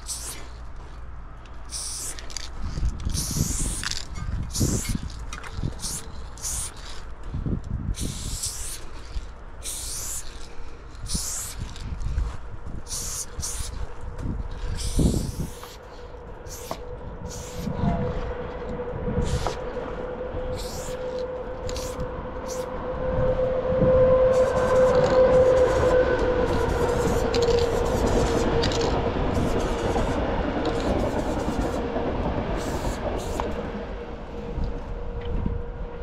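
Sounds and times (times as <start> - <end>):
spray paint can hissing: 0.0 - 0.6, 1.7 - 7.1, 7.9 - 11.8, 12.8 - 13.8, 14.6 - 15.8, 16.4 - 17.7, 19.2 - 19.6, 20.5 - 22.7, 26.5 - 31.8, 32.6 - 33.6
steady hum with overtones: 0.0 - 36.0.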